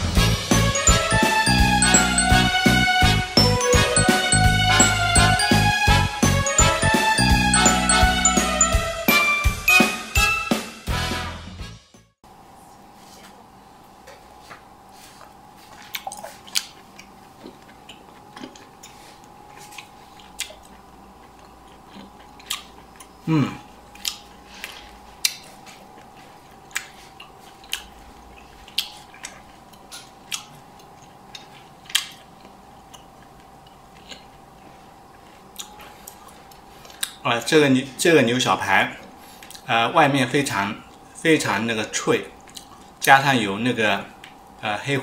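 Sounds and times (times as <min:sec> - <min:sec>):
faint steady hum: 0:12.2 - 0:45.0
person chewing: 0:15.0 - 0:37.2, 0:39.4 - 0:39.7, 0:42.4 - 0:43.0.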